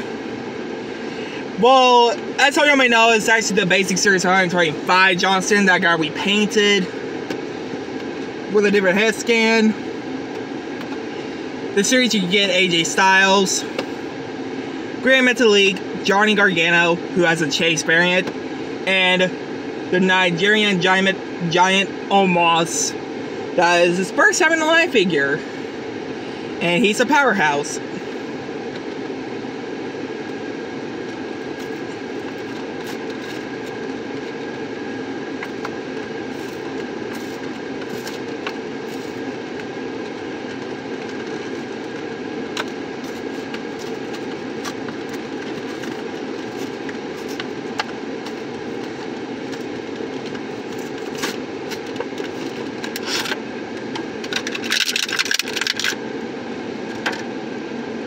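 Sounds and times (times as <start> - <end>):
car engine and fan drone: 0.0 - 58.0
packaging crinkling: 54.2 - 56.0
toy package clicks and rustles: 54.2 - 56.0.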